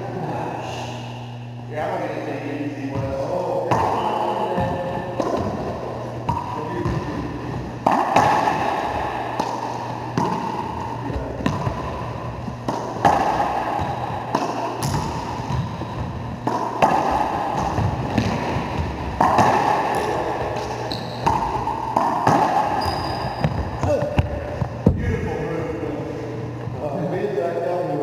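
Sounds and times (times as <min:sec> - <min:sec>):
low steady hum: 0:00.0 - 0:28.0
ball smacking racquets and walls: 0:02.9 - 0:25.0.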